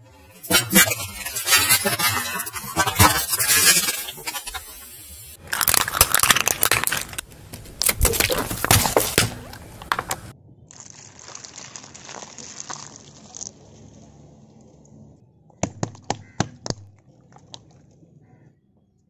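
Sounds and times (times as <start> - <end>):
faint crackles and squelches: 5.3 - 15.6, 16.2 - 19.0
tyre crushing small objects: 5.4 - 13.6.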